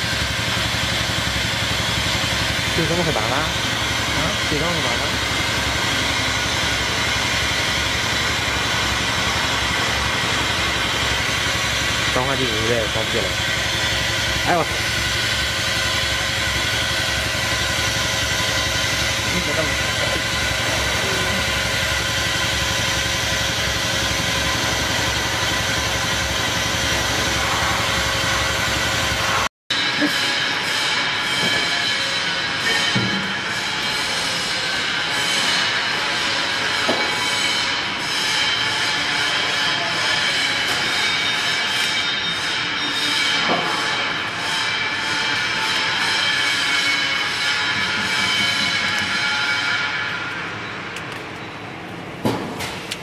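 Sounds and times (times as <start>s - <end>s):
machinery humming and hissing: 0.0s - 53.0s.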